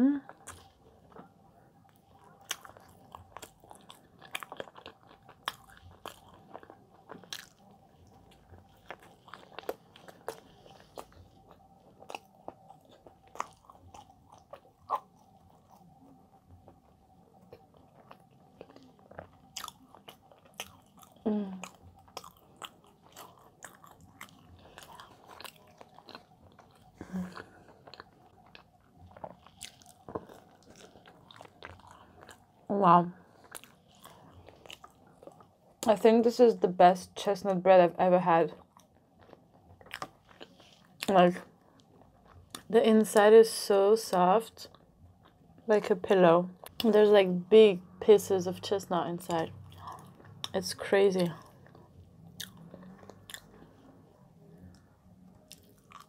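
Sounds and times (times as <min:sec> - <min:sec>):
person chewing bread: 0:00.2 - 0:35.9, 0:38.5 - 0:42.7, 0:44.1 - 0:45.7, 0:46.6 - 0:46.9, 0:49.3 - 0:56.0.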